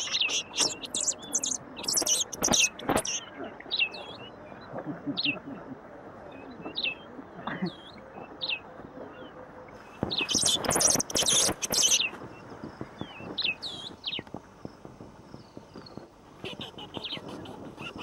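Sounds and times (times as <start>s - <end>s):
birds chirping: 0.0s - 5.6s, 9.8s - 14.2s
loud scratchy noise burst: 10.0s - 12.2s.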